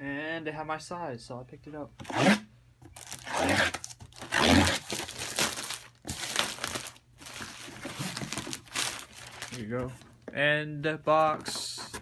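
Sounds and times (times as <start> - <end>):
plastic bag ripping and crinkling: 3.0 - 9.6.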